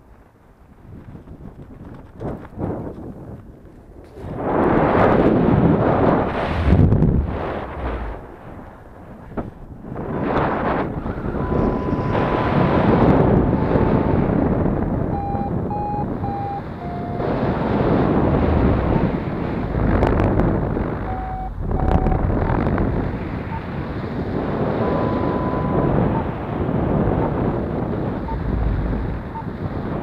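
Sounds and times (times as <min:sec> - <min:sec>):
wind rushing over microphone: 0:00.0 - 0:30.0
long steady tone: 0:11.1 - 0:23.9, 0:24.6 - 0:30.0
variometer beeping: 0:11.3 - 0:14.3, 0:15.0 - 0:17.6, 0:18.5 - 0:19.4, 0:20.0 - 0:23.8, 0:24.7 - 0:26.6, 0:27.6 - 0:30.0.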